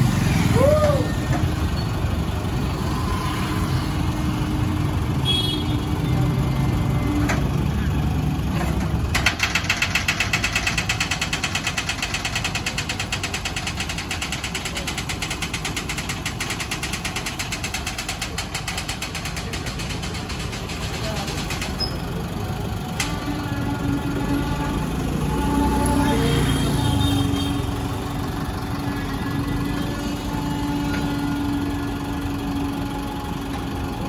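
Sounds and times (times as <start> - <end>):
truck engine rumbling: 0.0 - 34.0
fast pulsing rattle: 9.2 - 22.0.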